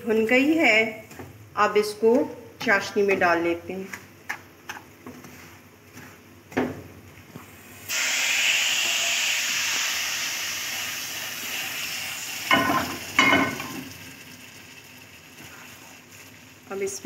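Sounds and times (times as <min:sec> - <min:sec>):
loud hiss of steam: 0:07.8 - 0:12.5.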